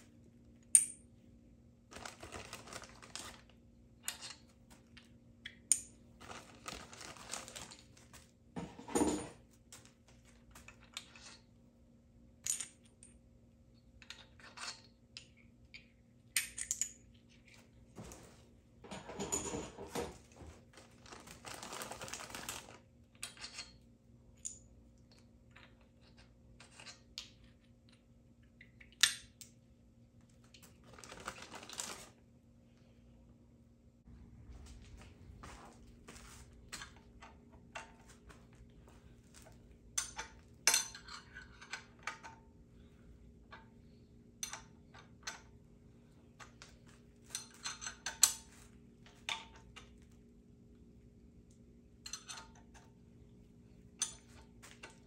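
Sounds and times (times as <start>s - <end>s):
metal tools clinking and knocking: 8.6s - 9.4s, 18.9s - 20.2s, 39.3s - 42.4s, 47.2s - 48.6s, 52.0s - 52.9s
rattling and scraping: 18.1s - 20.6s
steady low hum: 32.1s - 55.0s.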